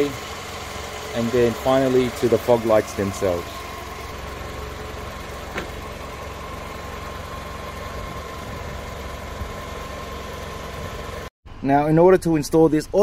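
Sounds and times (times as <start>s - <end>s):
car engine idling: 0.0s - 11.3s.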